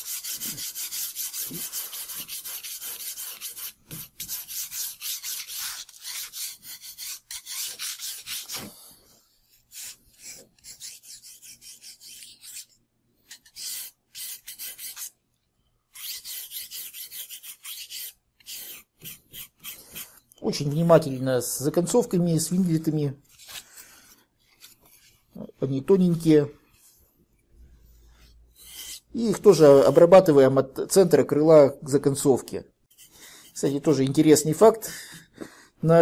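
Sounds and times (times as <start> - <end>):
sandpaper rubbing on wood: 0.0 - 8.7, 9.7 - 12.7, 13.6 - 15.1, 16.0 - 20.1.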